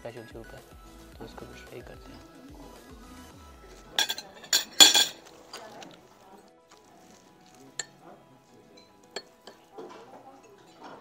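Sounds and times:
spoon clinking against bowl: 4.0 - 5.6, 7.8 - 8.0, 8.8 - 9.8.

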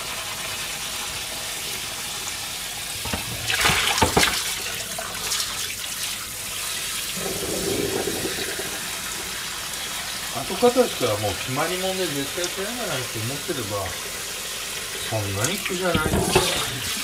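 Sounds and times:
water running in a kitchen: 0.0 - 17.0
dishes clattering: 3.0 - 4.4, 15.9 - 16.9.

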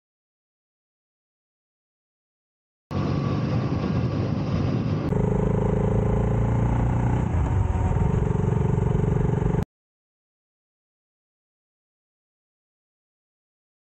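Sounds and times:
motorcycle engine running: 5.0 - 9.6.

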